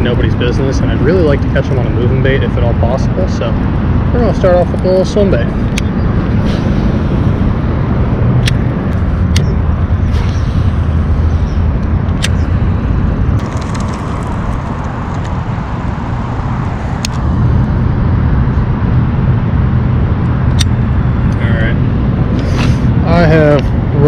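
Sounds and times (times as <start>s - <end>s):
low rumbling background noise: 0.0s - 24.0s.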